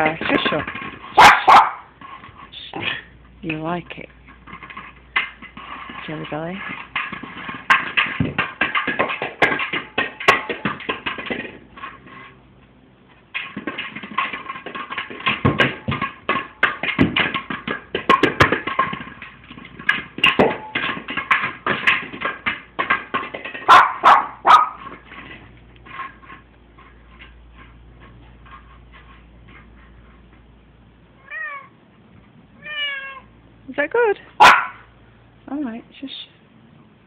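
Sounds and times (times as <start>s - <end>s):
toy clattering on floor: 0.0s - 2.9s, 3.5s - 12.4s, 13.3s - 30.0s.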